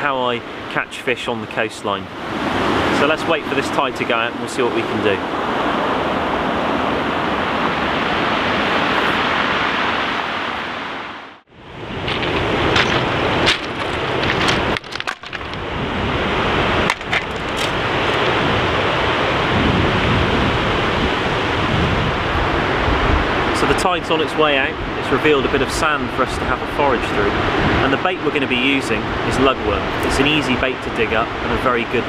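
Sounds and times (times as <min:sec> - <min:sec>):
wind on microphone: 0:05.2 - 0:11.0, 0:11.6 - 0:28.0
surf breaking on shingle: 0:12.0 - 0:15.8, 0:16.8 - 0:18.4.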